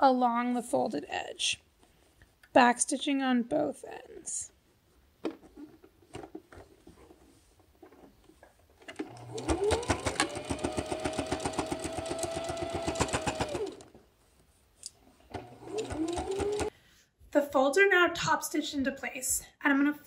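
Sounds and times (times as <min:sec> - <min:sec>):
sewing machine running: 0:09.1 - 0:13.9, 0:15.4 - 0:16.7.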